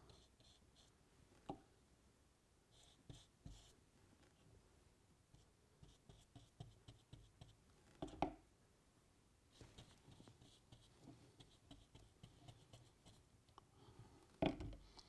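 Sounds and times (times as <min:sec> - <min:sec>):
glue brush strokes on cork: 0:00.0 - 0:01.0, 0:09.6 - 0:13.3.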